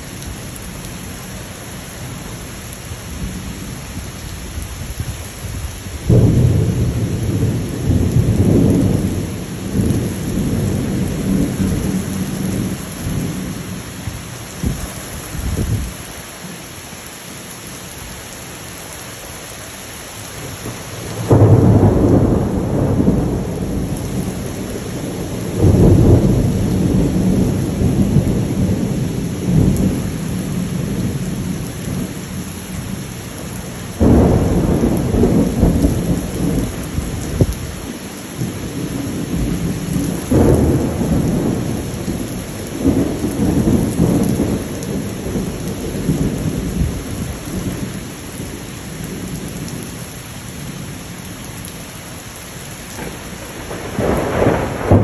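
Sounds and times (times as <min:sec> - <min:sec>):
heavy rain falling: 0:00.0 - 0:55.0
thunder rumbling: 0:06.0 - 0:13.8, 0:20.7 - 0:33.0, 0:33.8 - 0:49.8, 0:53.0 - 0:55.0.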